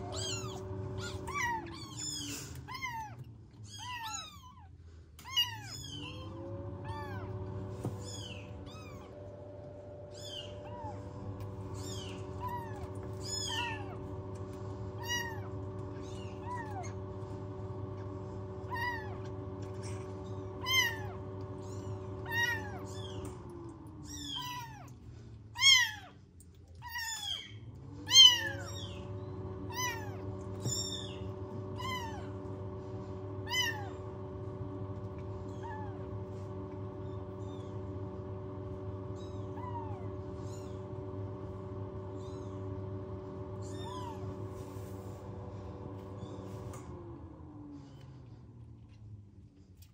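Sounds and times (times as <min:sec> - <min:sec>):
kittens mewing: 0:00.0 - 0:09.3, 0:10.0 - 0:14.2, 0:15.0 - 0:17.1, 0:18.6 - 0:25.0, 0:25.6 - 0:32.5, 0:33.4 - 0:34.0, 0:35.3 - 0:36.4, 0:39.2 - 0:40.8, 0:43.6 - 0:44.4
fan humming: 0:00.0 - 0:49.9.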